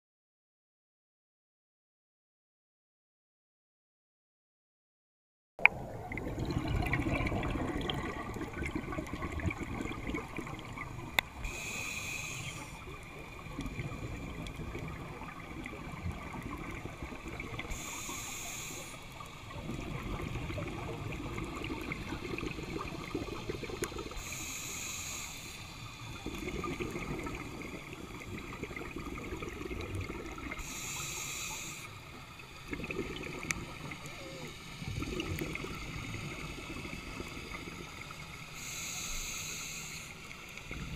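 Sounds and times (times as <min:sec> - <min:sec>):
underwater bubbling: 0:05.6 - 0:40.9
regulator hissing inhalation: 0:11.4 - 0:13.0, 0:17.6 - 0:19.3, 0:23.4 - 0:27.9, 0:30.4 - 0:32.3, 0:38.4 - 0:40.9.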